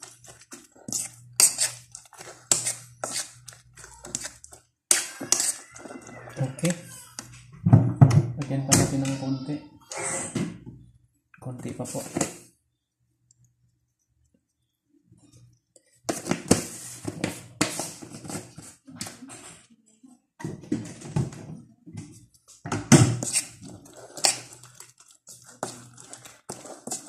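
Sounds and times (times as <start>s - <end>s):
spoon scraping a ceramic bowl: 0.0s - 6.8s, 23.2s - 27.0s.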